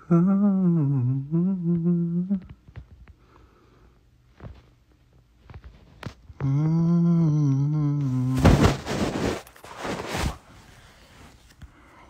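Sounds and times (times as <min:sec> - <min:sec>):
man humming low note: 0:00.0 - 0:02.6, 0:06.4 - 0:08.5.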